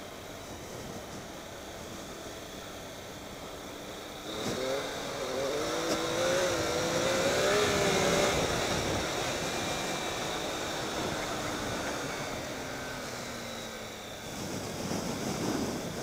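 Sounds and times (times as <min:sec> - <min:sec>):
motorcycle engine accelerating: 0:00.3 - 0:16.0
wind rush: 0:04.2 - 0:16.0.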